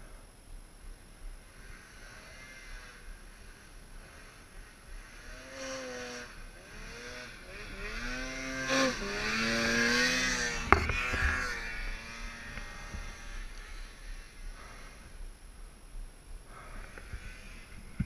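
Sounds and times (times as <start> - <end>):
snowmobile engine revving: 1.5 - 15.1.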